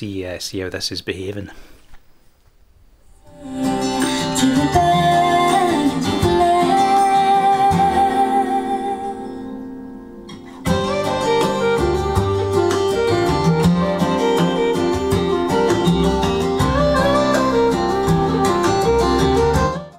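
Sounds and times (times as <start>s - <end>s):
plucked guitar music: 3.2s - 19.9s.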